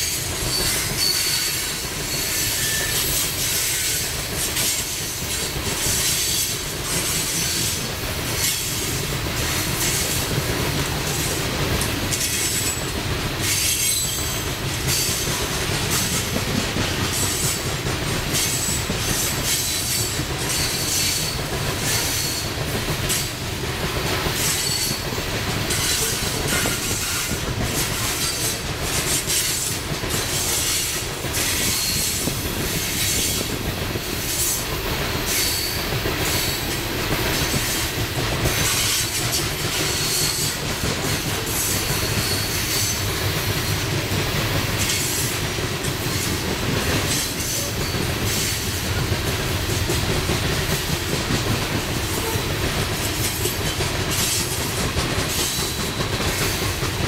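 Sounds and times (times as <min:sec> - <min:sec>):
train wheels rumbling on rail: 0:00.0 - 0:57.0
high-pitched wheel squeal: 0:00.5 - 0:04.0.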